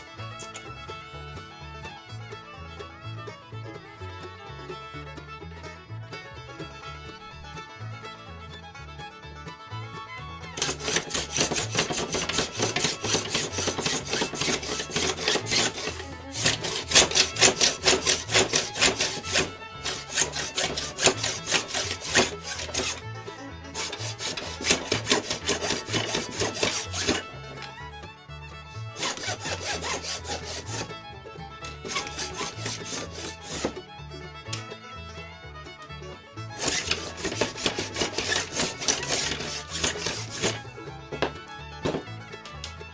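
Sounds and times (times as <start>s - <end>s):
background music: 0.0s - 42.9s
plane and scraper rasping on wood: 10.6s - 23.1s, 23.7s - 27.7s, 28.9s - 31.0s, 31.6s - 33.8s, 36.5s - 40.6s, 41.2s - 42.1s.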